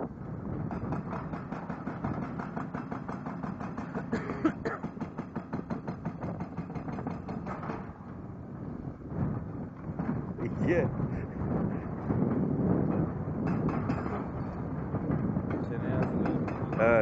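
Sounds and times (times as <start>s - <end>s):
hydraulic rock breaker hammering: 0.7s - 8.0s, 15.5s - 17.0s.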